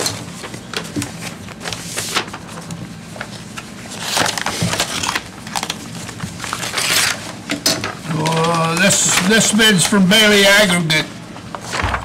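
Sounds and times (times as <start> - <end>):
paper rustling and crinkling: 0.0 - 10.5, 11.4 - 12.0
faint room hum: 0.0 - 12.0.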